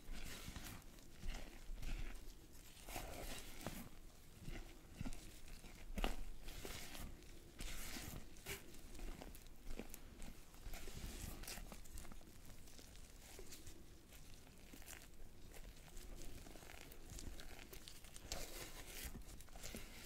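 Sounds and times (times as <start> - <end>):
spatula scraping batter in bowl: 0.0 - 12.2, 14.8 - 20.0.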